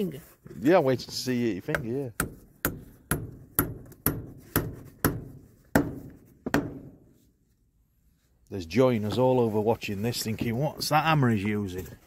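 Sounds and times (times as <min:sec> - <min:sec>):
hammer striking nails into wood: 0:01.7 - 0:07.0.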